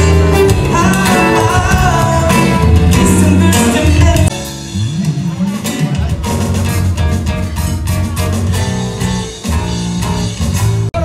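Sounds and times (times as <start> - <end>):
person singing: 0.0 - 6.3
bass guitar: 0.0 - 11.0
drums: 0.0 - 11.0
electric guitars: 0.0 - 11.0.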